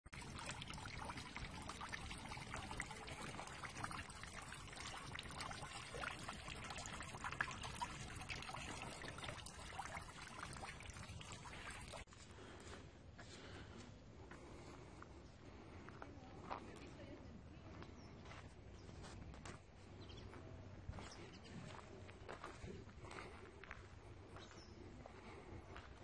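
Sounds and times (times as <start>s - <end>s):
water splashing into pond: 0.0s - 12.1s.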